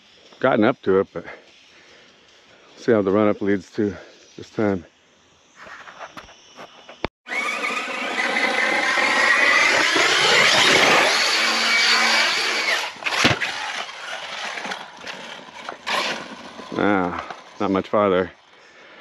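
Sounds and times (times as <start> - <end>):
electric motor whine: 7.3 - 17.9
sharp thump: 13.1 - 13.5.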